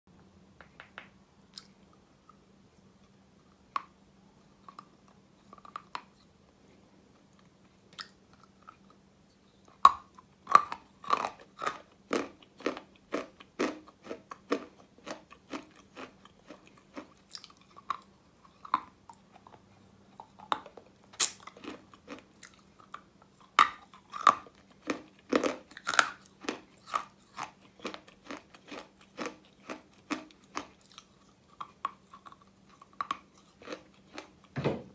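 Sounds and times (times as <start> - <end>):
faint steady hum: 0.1 - 34.9
biting and chewing chalk: 9.7 - 34.5.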